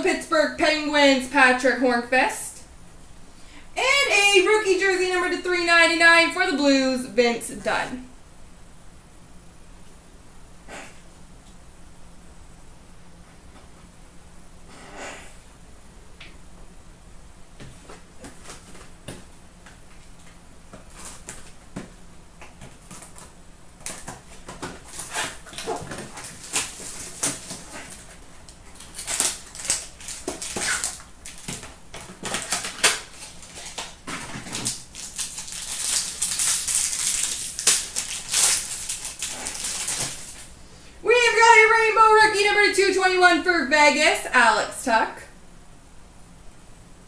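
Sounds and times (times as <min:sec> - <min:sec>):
wrapper crinkling: 0:20.8 - 0:21.7, 0:22.6 - 0:40.5.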